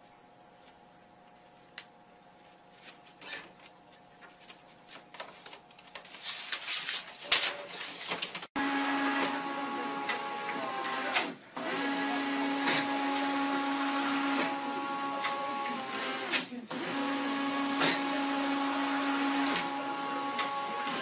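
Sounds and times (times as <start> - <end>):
paper rustling: 2.4 - 8.5
printer humming and clicking: 8.6 - 21.0
printer mechanical whir: 8.6 - 21.0.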